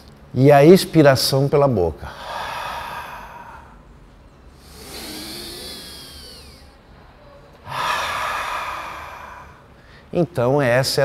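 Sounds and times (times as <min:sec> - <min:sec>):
man inhaling through nose: 0:02.1 - 0:03.9, 0:04.6 - 0:06.8, 0:07.6 - 0:10.1
forceful exhale through mouth: 0:04.6 - 0:06.7, 0:07.6 - 0:10.1.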